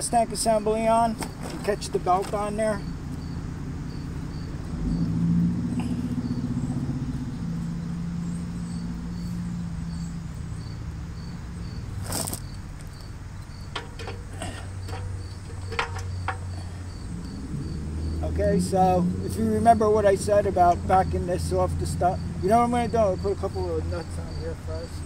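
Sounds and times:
insect chirping: 0.0s - 25.0s
low motor hum: 2.8s - 12.0s, 12.6s - 23.8s
metal clinks and knocks: 13.5s - 17.0s.

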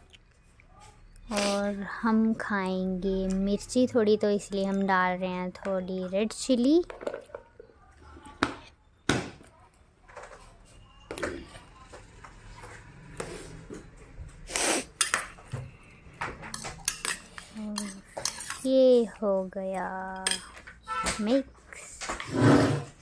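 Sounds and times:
spoon scraping a bowl: 16.5s - 18.7s.

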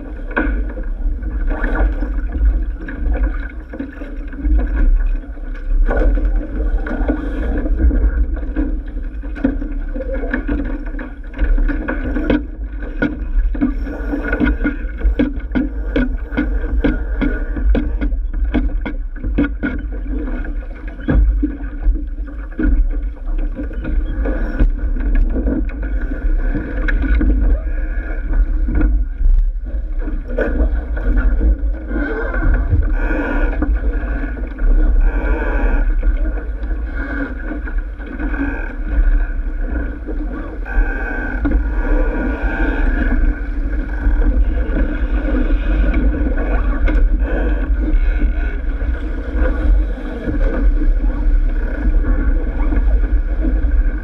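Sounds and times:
water rushing along hull: 0.0s - 54.0s.

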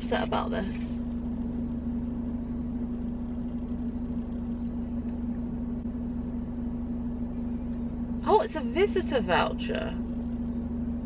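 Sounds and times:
car cabin droning hum: 0.0s - 11.0s
low rumble: 0.0s - 11.0s.

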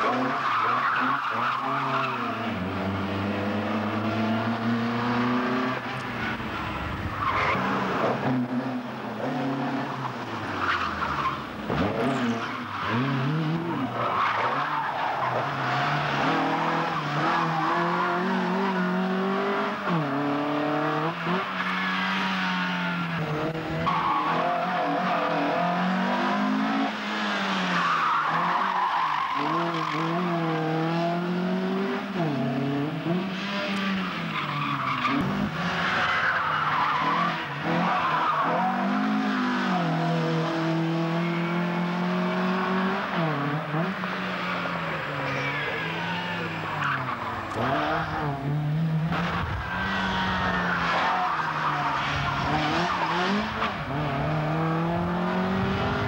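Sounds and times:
tyres squealing on tarmac: 0.0s - 2.6s, 27.6s - 30.3s, 34.0s - 39.8s, 43.8s - 48.4s
rally car engine revving: 0.0s - 56.0s.

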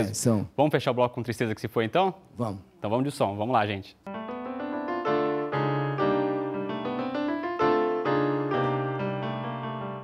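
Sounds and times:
piano chords: 4.1s - 10.0s.

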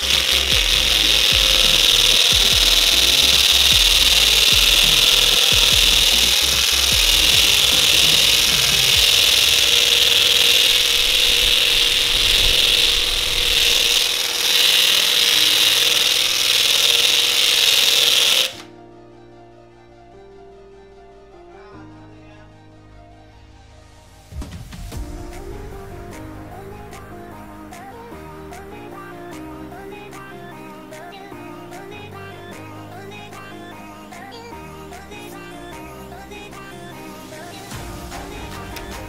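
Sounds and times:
sanding wood: 0.0s - 18.6s
drill whining: 0.0s - 18.7s.

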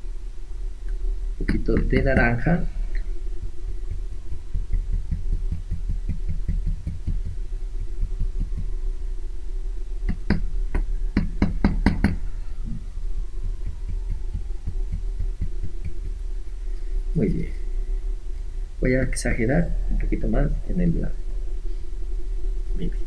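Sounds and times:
steady low hum: 0.0s - 23.0s
paintbrush tapping on card: 4.6s - 8.7s, 13.6s - 16.2s.

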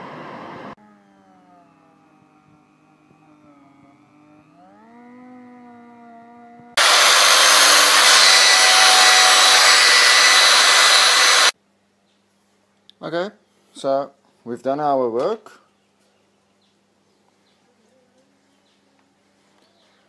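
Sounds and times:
rotary tool motor whine: 6.7s - 11.6s
loud grinding rush: 6.8s - 11.5s.

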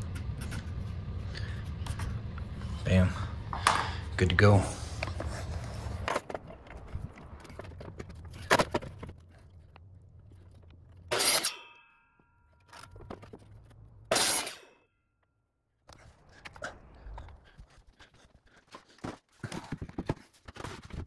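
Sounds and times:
boards knocking and scraping: 5.1s - 9.5s, 18.7s - 21.0s.

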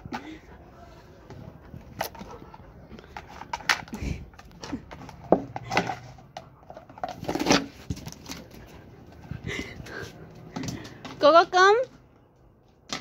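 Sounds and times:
plastic disc clattering on concrete: 1.9s - 8.6s, 12.8s - 13.0s.

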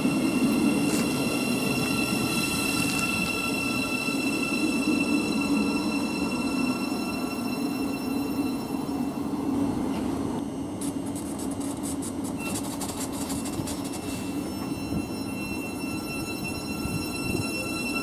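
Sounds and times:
electric train humming: 0.0s - 18.0s
thin steady whines: 0.0s - 18.0s
rapid high crackling clicks: 10.8s - 14.1s.

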